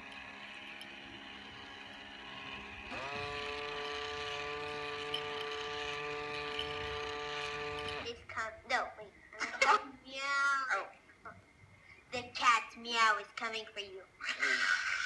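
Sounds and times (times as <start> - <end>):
buzzing drone: 0.0 - 8.1.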